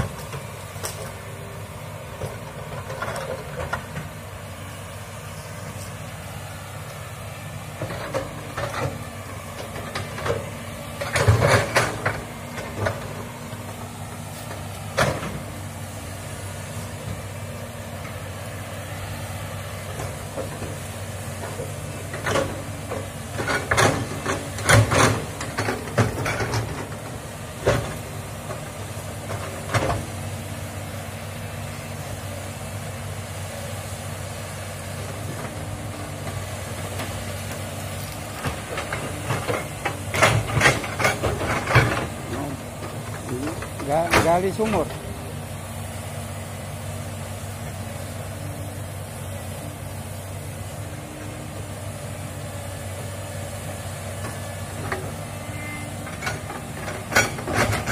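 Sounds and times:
excavator diesel engine: 0.0s - 57.9s
machine knocks and clatter: 11.0s - 13.2s, 20.0s - 30.1s, 38.4s - 45.0s.

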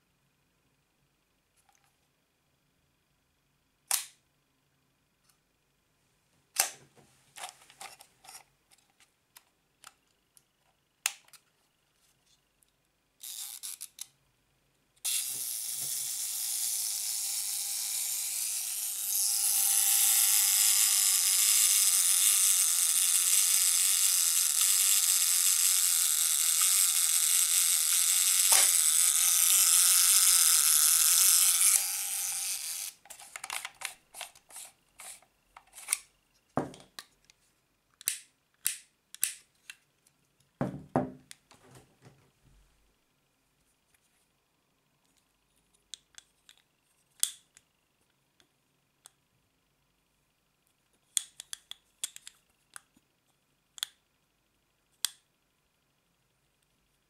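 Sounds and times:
clockwork self-timer buzzing: 15.1s - 33.0s.

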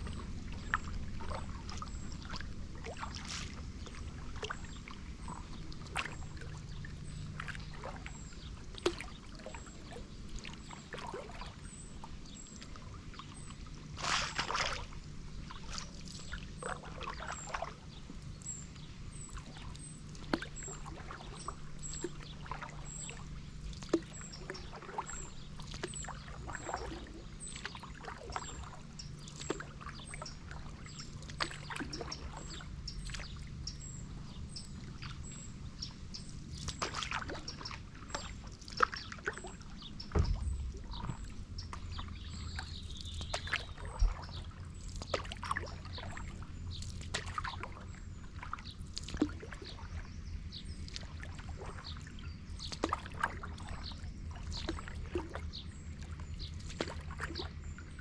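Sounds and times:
paddle strokes in water: 0.0s - 58.0s
light knocks on paddle board: 40.1s - 42.1s.

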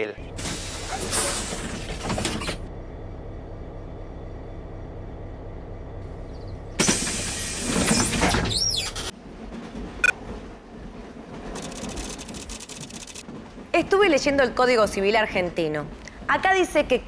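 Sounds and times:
train carriage rumble: 0.0s - 17.0s
sliding doors closing whoosh: 0.2s - 2.7s, 6.7s - 12.9s.

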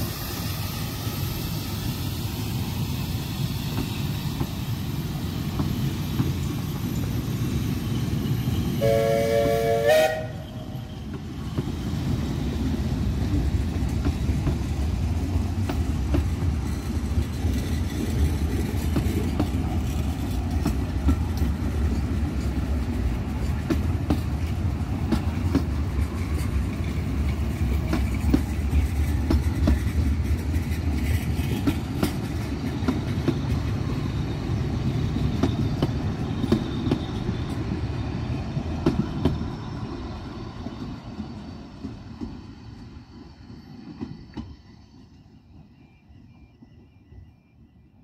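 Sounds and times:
railway coaches rumbling past: 0.0s - 48.0s
wheels clicking over rail joints: 13.2s - 33.8s.

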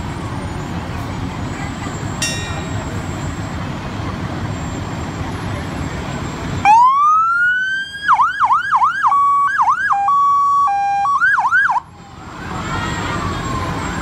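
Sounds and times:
truck engine rumble: 0.0s - 14.0s.

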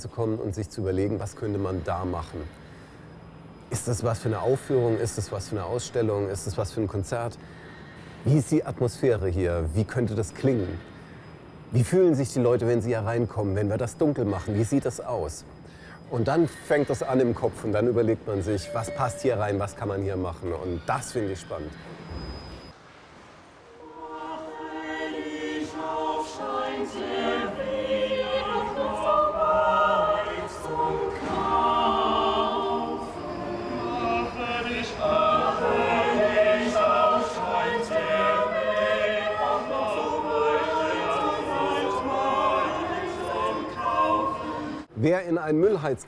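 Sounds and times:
mixed choir singing held chords: 23.6s - 45.0s.

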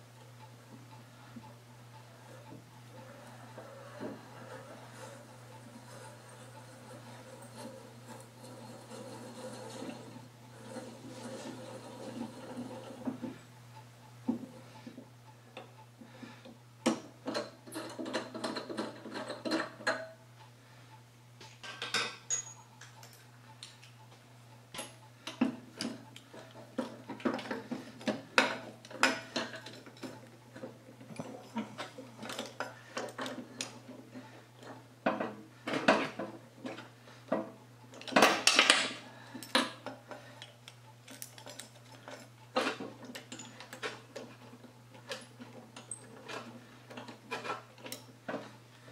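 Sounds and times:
steel parts and tools clinking: 21.5s - 23.9s, 37.9s - 44.4s, 45.0s - 48.1s.

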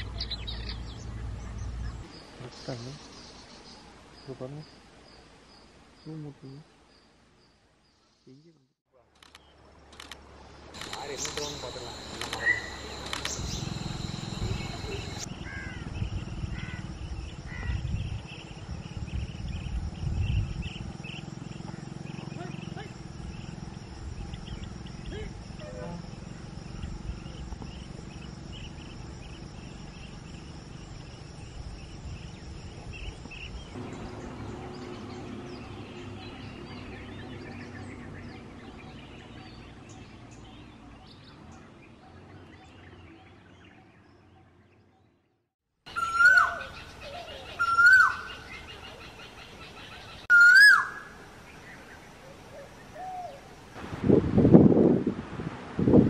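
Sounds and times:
faint bird chirps: 10.8s - 33.7s
short whistled bird calls: 11.2s - 15.3s.

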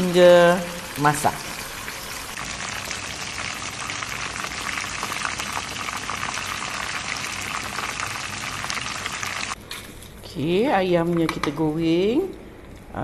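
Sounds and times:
chicken deep-frying in oil: 0.0s - 9.6s.

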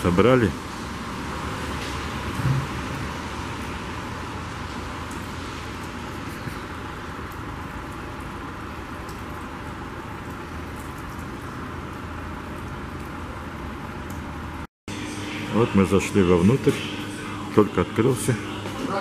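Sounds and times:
steady rainfall hiss: 0.0s - 19.0s
faint ticks of raindrops: 4.5s - 14.7s.

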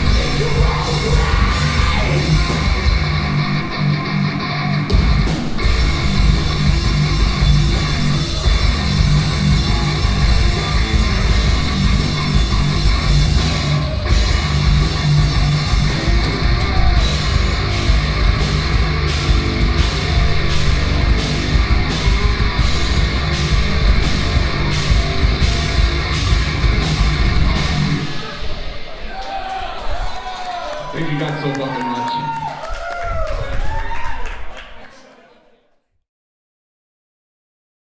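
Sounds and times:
heavy metal band playing live: 0.0s - 28.9s.

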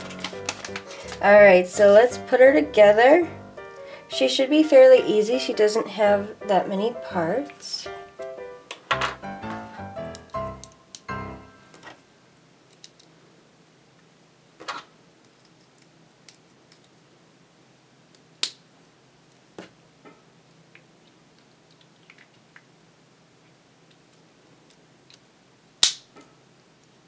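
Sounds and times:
plastic toy parts clicking: 12.7s - 13.1s, 15.2s - 17.0s.

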